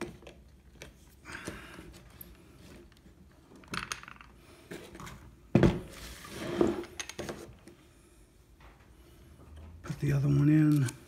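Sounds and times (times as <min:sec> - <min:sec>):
metal parts clinking and knocking: 0:03.6 - 0:04.4.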